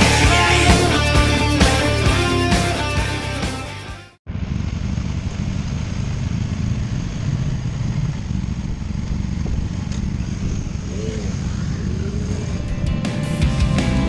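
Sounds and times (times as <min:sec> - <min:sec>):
motorcycle engine rumbling: 0:04.2 - 0:14.0.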